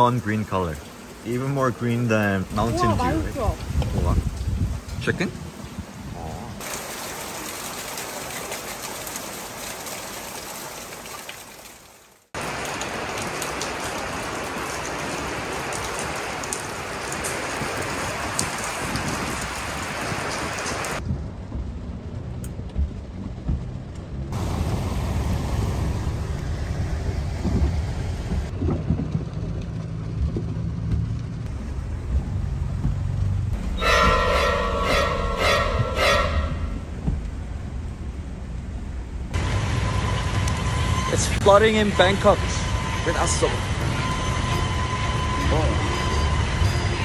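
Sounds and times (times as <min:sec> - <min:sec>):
rain on windscreen: 0:00.0 - 0:34.3, 0:36.6 - 0:43.4
heavy rain on plants and pond: 0:00.0 - 0:35.4, 0:36.6 - 0:47.0
car driving through floodwater: 0:12.4 - 0:28.7.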